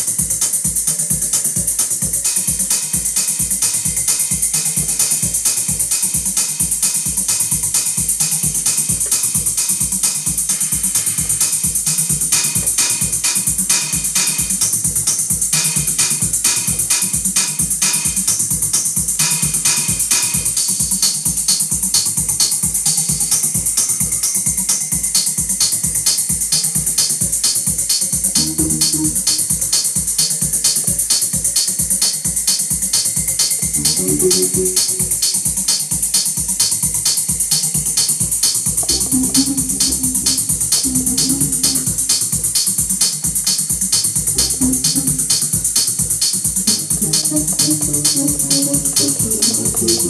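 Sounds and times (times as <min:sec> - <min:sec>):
hi-hat ticks: 0:00.0 - 0:50.0
techno kick drum: 0:00.0 - 0:50.0
short synth notes: 0:28.4 - 0:29.4, 0:33.8 - 0:35.1, 0:38.8 - 0:42.1, 0:44.3 - 0:45.4, 0:46.7 - 0:50.0.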